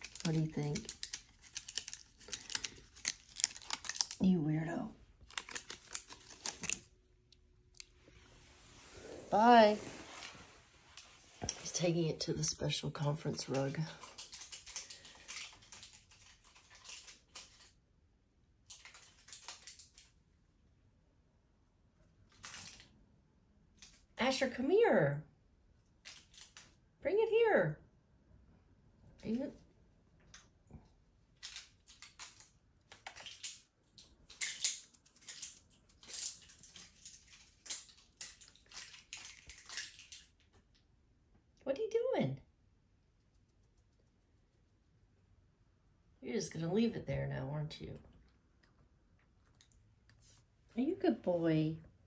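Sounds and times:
plastic crackling as cat bites: 0:00.0 - 0:04.2, 0:05.2 - 0:06.9.

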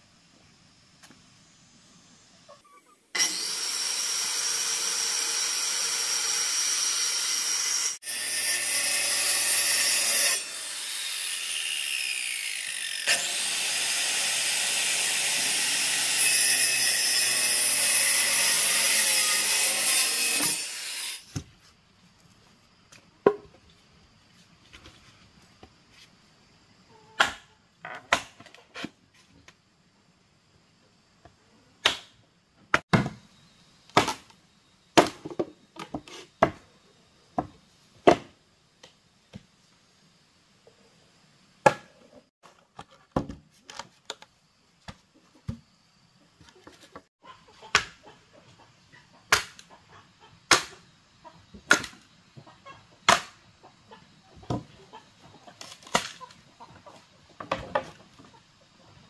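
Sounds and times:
chickens clucking: 0:46.4 - 0:50.5, 0:52.4 - 0:59.0.

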